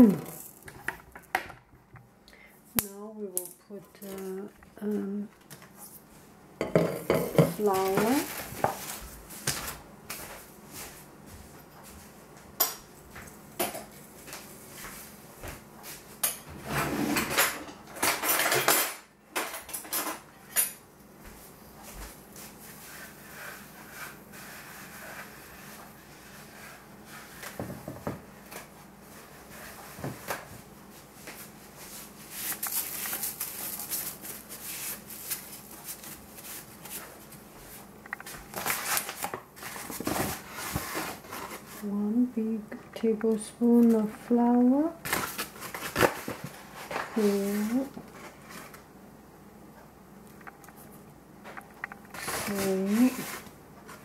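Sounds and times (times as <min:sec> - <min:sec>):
utensils and cookware clattering: 0:06.6 - 0:08.9, 0:16.2 - 0:20.8.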